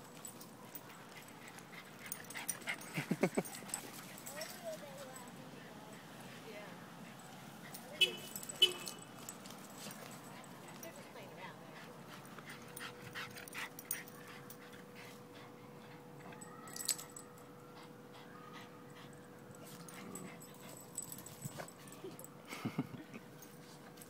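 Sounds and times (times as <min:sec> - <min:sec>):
dogs play growling: 0:19.6 - 0:21.8.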